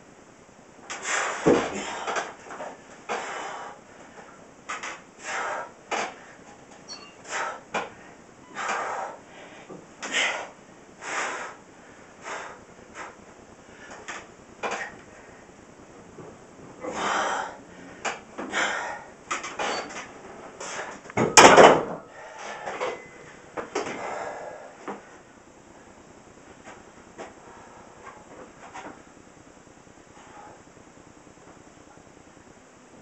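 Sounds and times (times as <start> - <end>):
man breathing forcefully: 1.0 - 4.4, 5.1 - 6.5, 7.2 - 15.6, 16.8 - 19.7, 22.0 - 23.0, 23.8 - 25.3.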